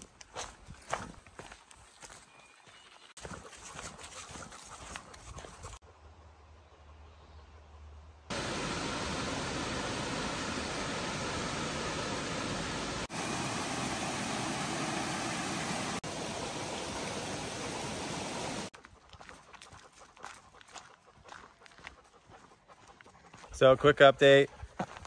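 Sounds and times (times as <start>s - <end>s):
flowing water rushing: 8.3s - 18.7s.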